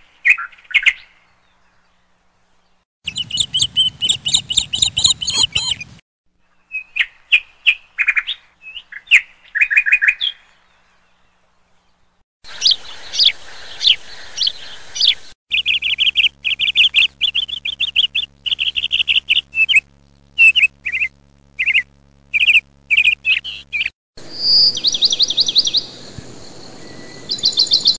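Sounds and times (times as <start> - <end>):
birds chirping and trilling: 0.2 - 27.9
background hiss: 10.8 - 23.6.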